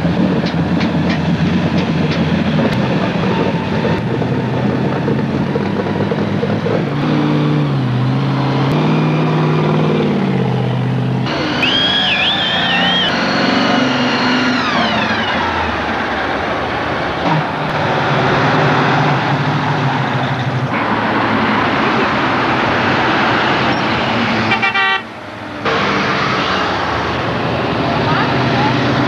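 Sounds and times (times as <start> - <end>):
deep engine rumble: 0.0 - 23.3
cars passing with loud exhausts: 0.0 - 29.0
car horn: 24.4 - 25.1.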